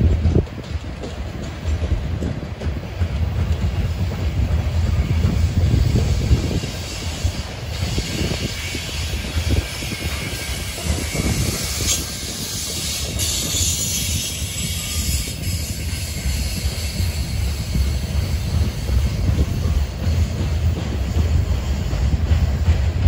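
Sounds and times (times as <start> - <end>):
train cars rumbling on rails: 0.0 - 23.0
hiss: 5.4 - 18.8.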